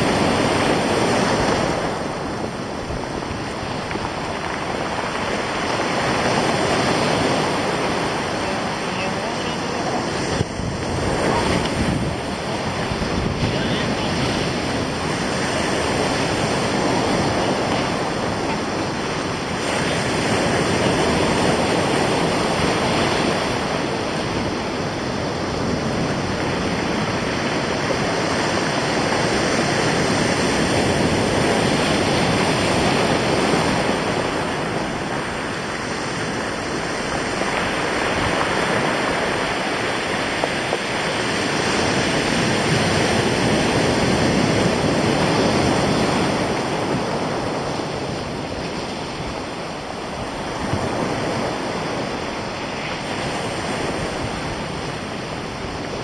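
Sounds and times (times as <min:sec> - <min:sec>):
surf breaking on pebbly shore: 0:00.0 - 0:56.0
wind blowing: 0:00.0 - 0:56.0.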